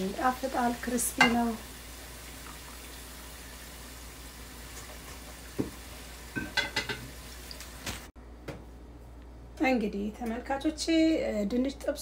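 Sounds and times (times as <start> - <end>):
hot oil sizzling: 0.0 - 8.1.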